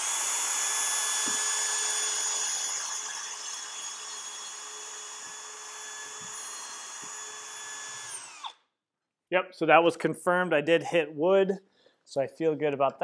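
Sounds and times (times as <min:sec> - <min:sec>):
cordless drill whining: 0:00.0 - 0:08.6.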